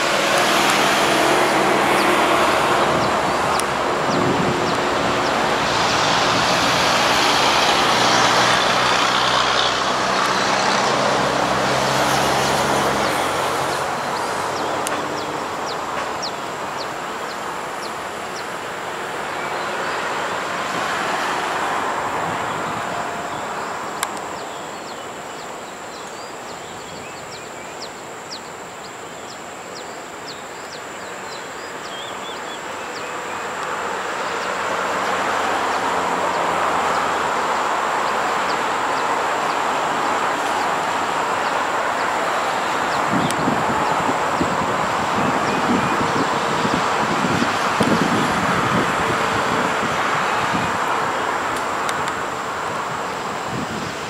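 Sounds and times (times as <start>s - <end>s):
train wheels rumbling on rails: 0.0s - 24.1s.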